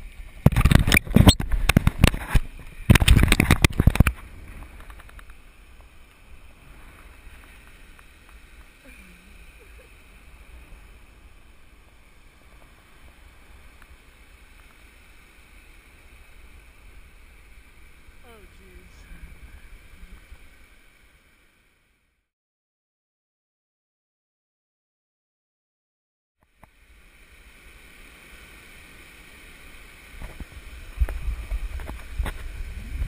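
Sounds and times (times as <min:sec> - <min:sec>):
faint steady hiss: 0:00.0 - 0:22.2, 0:26.4 - 0:33.0
wind buffeting microphone: 0:30.9 - 0:33.0.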